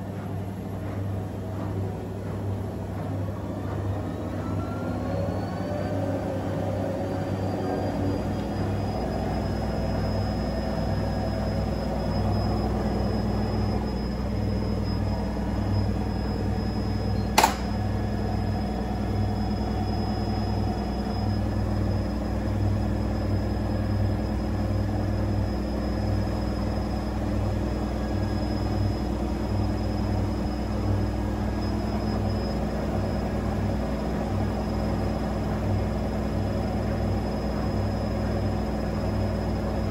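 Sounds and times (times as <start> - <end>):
motor hum: 0.0 - 39.9
washing machine drum turning: 9.0 - 18.6
sharp click: 17.3 - 17.8.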